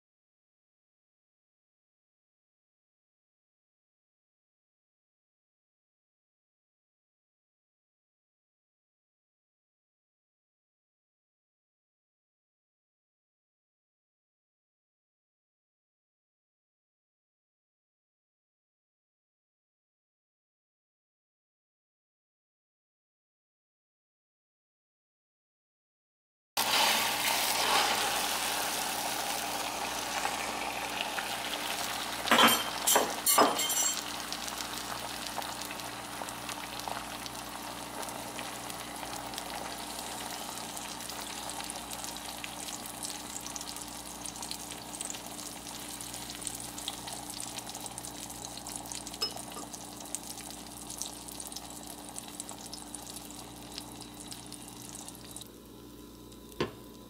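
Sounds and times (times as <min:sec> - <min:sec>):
egg sizzling in frying pan: 0:26.6 - 0:55.5.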